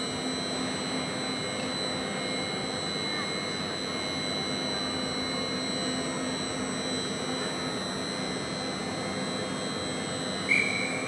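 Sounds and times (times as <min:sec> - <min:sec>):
crane hoist hum and whine: 0:00.0 - 0:11.0
loud high-pitched tone: 0:07.1 - 0:11.0.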